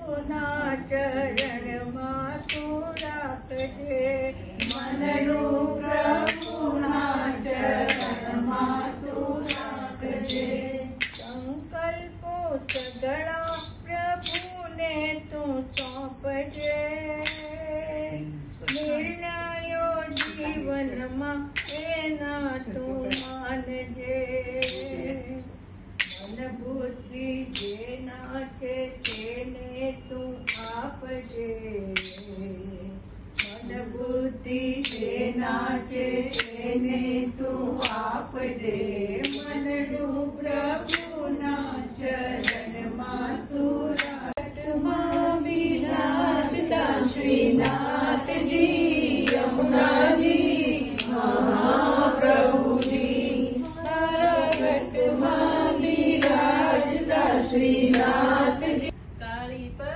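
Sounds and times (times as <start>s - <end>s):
group of voices singing: 0.0s - 11.5s, 33.4s - 59.0s
small hand cymbals clanging: 0.0s - 44.5s, 45.3s - 59.6s.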